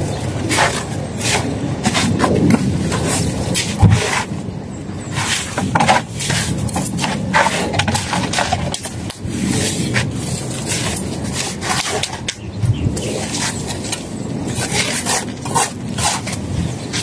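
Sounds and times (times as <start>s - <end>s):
low rumble: 0.0s - 5.7s
trowels scraping mortar: 0.5s - 4.3s, 5.1s - 12.4s, 13.0s - 17.0s.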